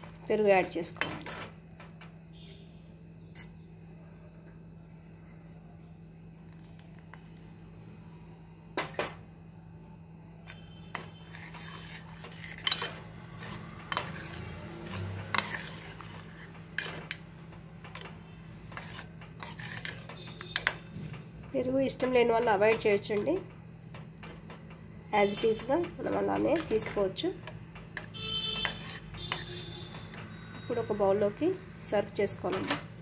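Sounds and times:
spoon scraping and clinking pot: 3.3s - 3.6s, 10.5s - 17.3s, 17.9s - 20.8s, 25.2s - 27.2s, 28.0s - 29.6s.

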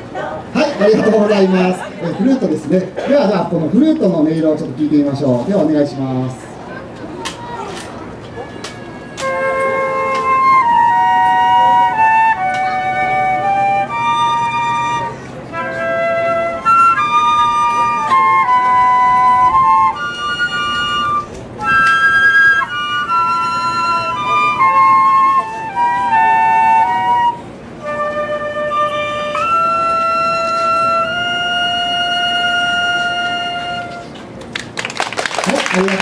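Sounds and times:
flute playing slow melody: 8.2s - 34.3s.

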